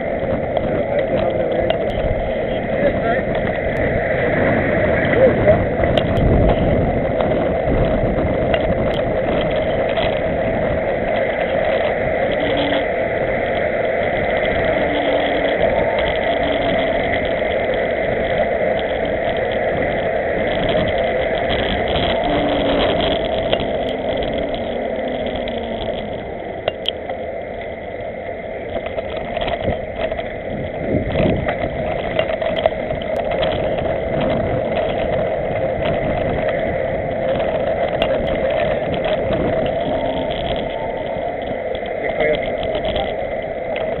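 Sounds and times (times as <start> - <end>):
bicycle tyres on asphalt: 0.0 - 44.0
wind on microphone: 0.0 - 44.0.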